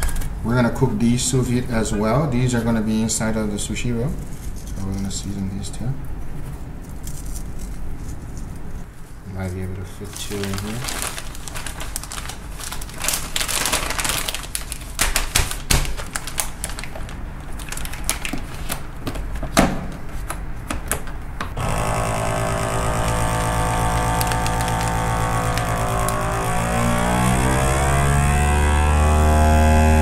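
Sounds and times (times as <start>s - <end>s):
plastic bag crinkling: 9.9s - 19.4s, 21.6s - 27.0s
vacuum pump humming: 21.4s - 30.0s.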